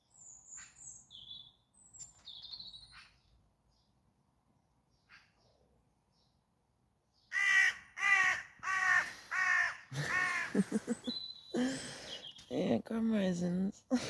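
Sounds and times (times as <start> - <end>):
crow cawing: 7.3 - 10.7.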